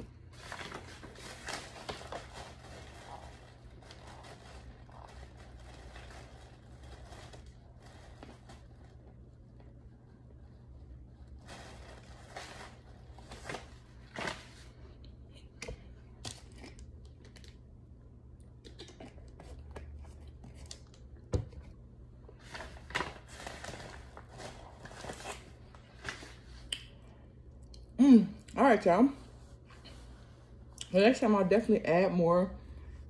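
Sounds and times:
plastic crinkling and rustling: 0.2 - 9.9, 11.2 - 14.8, 18.7 - 26.7.

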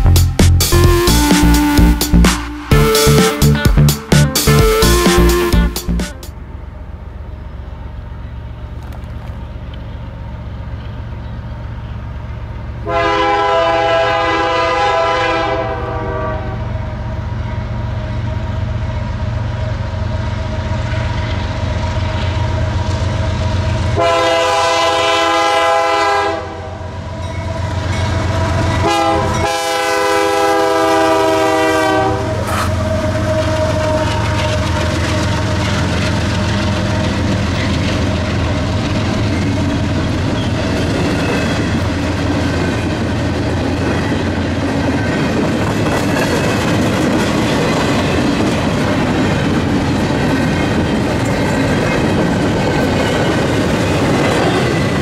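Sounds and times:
rolling train noise: 0.0 - 55.0
locomotive air horn: 0.7 - 6.3, 12.8 - 16.8, 24.0 - 26.9, 28.3 - 35.4.

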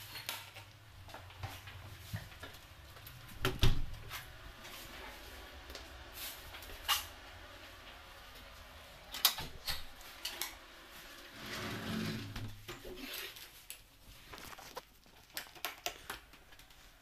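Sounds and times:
door opening rumbling shuffle: 1.2 - 5.4, 11.0 - 12.8.

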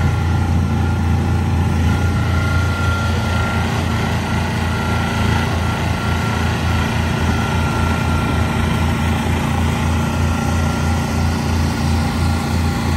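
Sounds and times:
high whine: 0.0 - 12.9
mini excavator engine running: 0.0 - 12.9.

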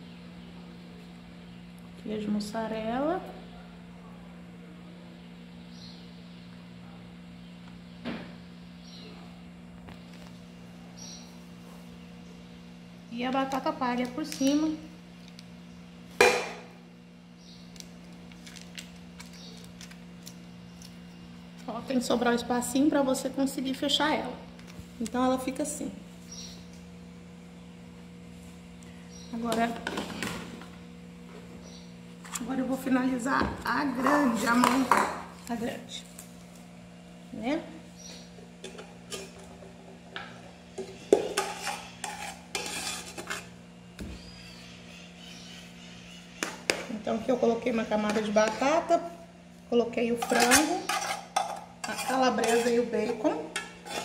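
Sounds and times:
steady low hum: 0.0 - 54.0
metal spoon scraping metal tray: 40.9 - 43.5, 50.1 - 54.0.

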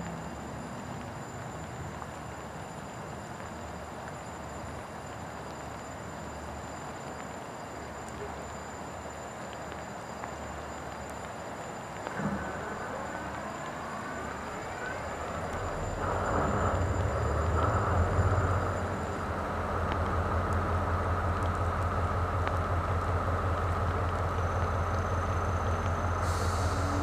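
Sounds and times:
diesel locomotive engine starting: 12.1 - 27.0.

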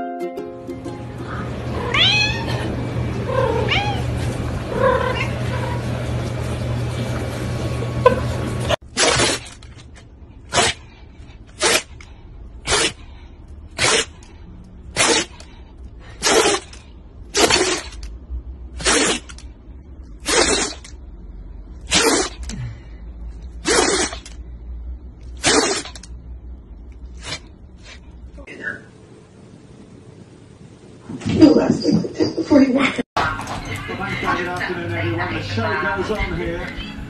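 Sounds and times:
dog sneezing: 10.5 - 10.9, 11.6 - 12.0, 12.6 - 13.0, 13.8 - 14.2, 14.9 - 15.4, 16.1 - 18.0, 18.8 - 19.4, 20.2 - 20.9, 21.8 - 22.5, 23.6 - 24.4, 25.4 - 26.1, 27.2 - 28.0.

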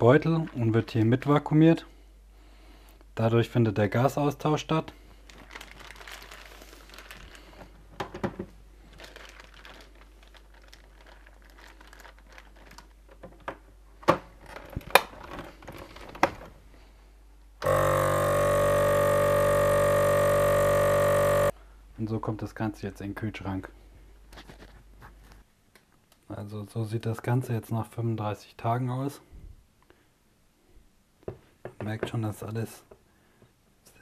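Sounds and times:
plastic bag crinkling: 0.0 - 1.2, 5.2 - 7.9, 8.7 - 13.5, 14.4 - 16.5
vacuum pump humming: 17.6 - 21.5.

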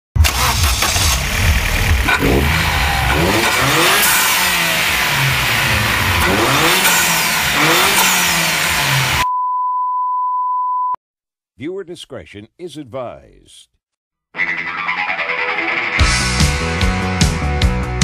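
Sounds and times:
car engine revving: 0.2 - 9.3.

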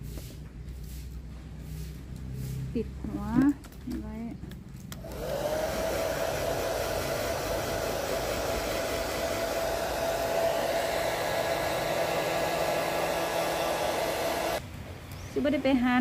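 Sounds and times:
hair dryer motor whine: 5.0 - 14.6.

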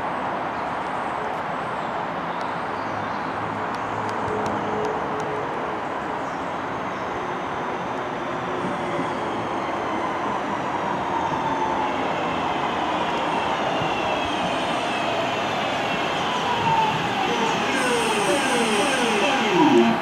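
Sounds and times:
train wheels rumbling on rails: 12.2 - 20.0
train motors whining: 17.2 - 20.0.

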